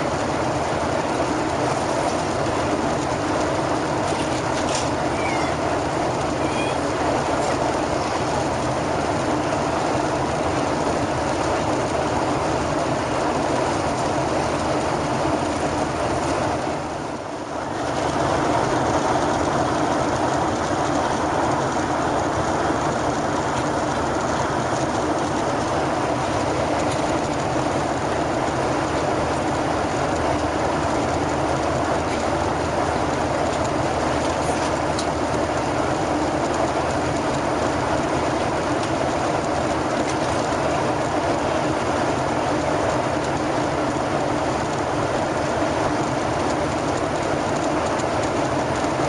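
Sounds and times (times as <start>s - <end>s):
airplane cabin jet engine hum: 0.0s - 49.0s.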